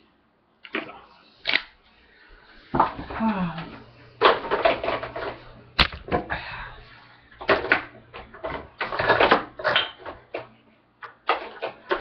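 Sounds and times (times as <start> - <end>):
kitchenware clattering and scraping: 4.2 - 5.5, 7.4 - 10.6.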